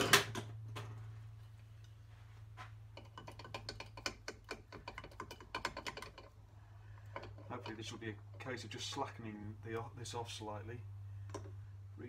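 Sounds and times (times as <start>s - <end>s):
spanner clicking on metal: 3.0s - 6.4s.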